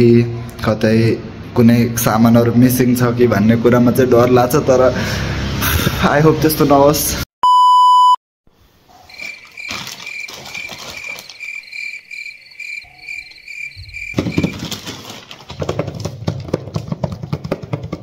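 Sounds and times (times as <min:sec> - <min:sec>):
cricket chirping: 0:09.0 - 0:14.8
plastic mailer bag crinkling: 0:09.1 - 0:12.0, 0:14.0 - 0:16.2.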